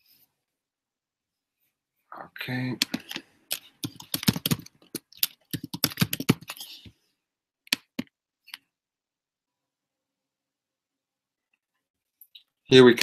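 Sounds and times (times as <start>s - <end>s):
keyboard clicks: 2.8s - 6.7s, 7.7s - 8.6s
computer keyboard typing: 2.8s - 6.8s.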